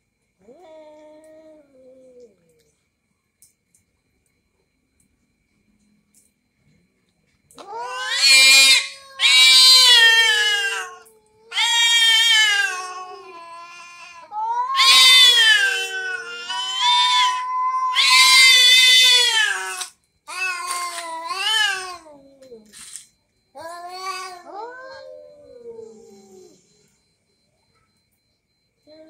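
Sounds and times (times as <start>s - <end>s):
cats yowling: 0.4s - 2.6s, 7.6s - 22.7s, 23.6s - 26.7s.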